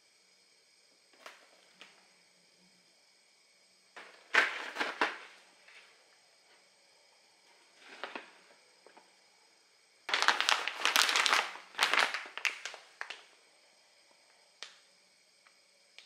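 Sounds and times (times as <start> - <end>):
packaging clattering and crackling: 4.0 - 5.4, 7.8 - 9.0, 10.1 - 13.2.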